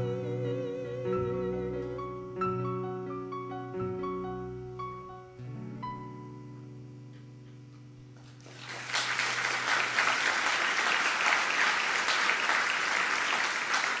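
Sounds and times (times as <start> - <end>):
held keyboard chord: 0.0 - 8.2
audience applause: 8.3 - 14.0.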